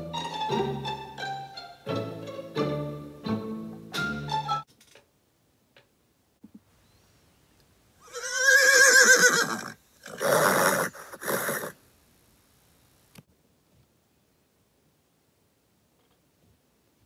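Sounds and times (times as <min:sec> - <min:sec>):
horse whinnying: 0:08.0 - 0:11.8
horse breathy bursts: 0:09.5 - 0:11.8.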